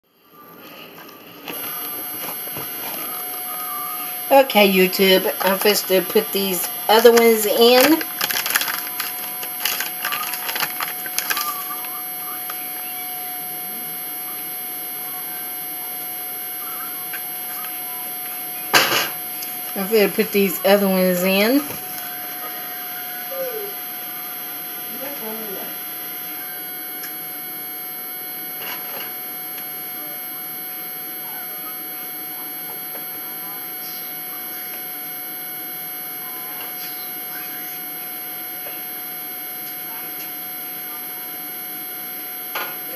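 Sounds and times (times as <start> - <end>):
thin constant whine: 0.1 - 42.9
background hum and hiss: 0.2 - 42.7
packaging crinkling: 6.7 - 12.0.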